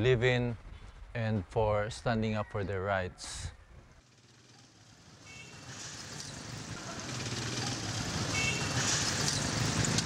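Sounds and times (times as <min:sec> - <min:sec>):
vehicle engines running: 0:04.0 - 0:10.0.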